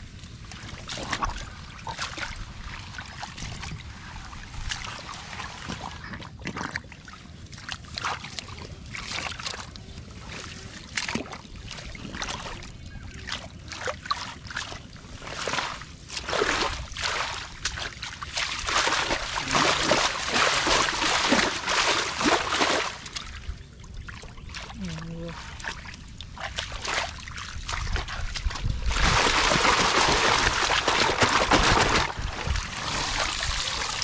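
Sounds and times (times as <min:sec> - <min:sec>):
wind rumble on microphone: 0:00.0 - 0:13.6, 0:23.0 - 0:34.0
sloshing in muddy water: 0:00.0 - 0:34.0.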